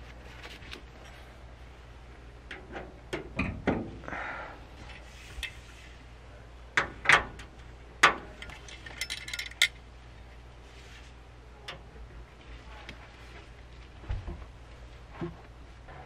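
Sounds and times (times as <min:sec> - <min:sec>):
metal lantern clinking: 0:08.4 - 0:09.8.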